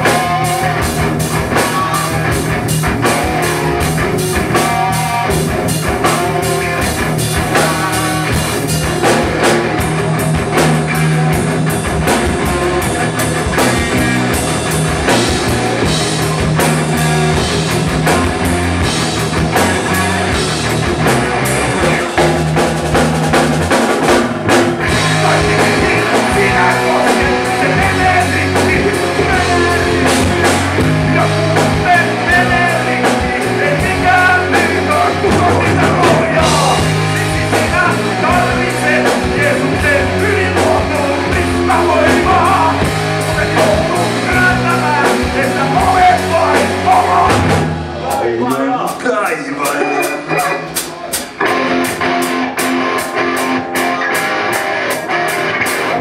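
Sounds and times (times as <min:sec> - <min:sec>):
live rock band playing: 0:00.0 - 0:56.0
man singing into microphone: 0:24.9 - 0:47.5.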